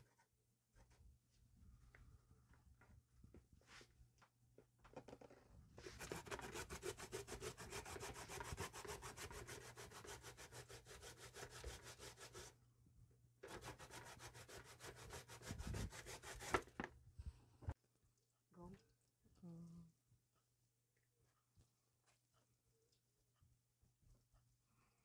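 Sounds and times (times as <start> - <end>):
carrot grating on box grater: 5.9 - 12.5, 13.4 - 16.7.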